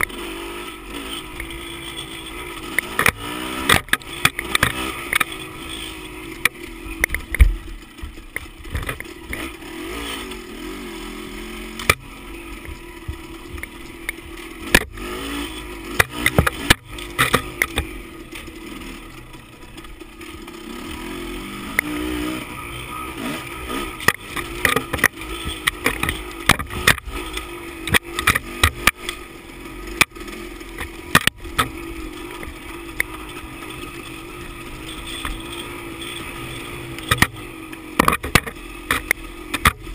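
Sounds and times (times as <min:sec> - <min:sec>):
dirt bike engine running: 0:00.0 - 0:39.9.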